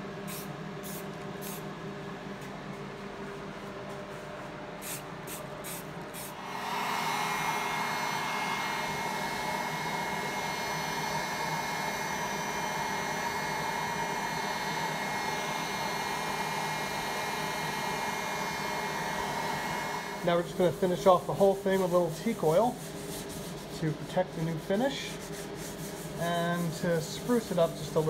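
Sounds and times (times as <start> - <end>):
heat gun blowing: 4.8 - 20.6.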